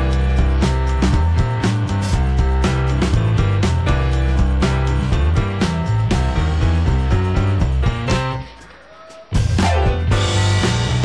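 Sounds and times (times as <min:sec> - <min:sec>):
background music with plucked notes: 0:00.0 - 0:11.0.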